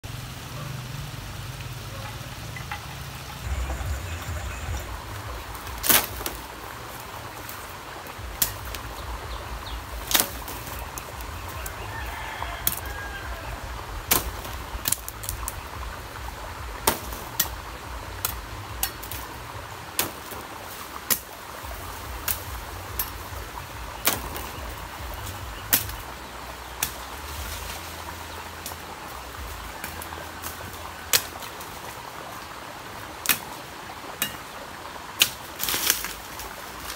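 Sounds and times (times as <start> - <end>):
dry bamboo poles knocking and snapping: 2.0 - 3.9, 4.8 - 32.0, 33.2 - 36.9
steady low rumble: 3.2 - 11.9, 13.2 - 19.9, 21.6 - 29.8.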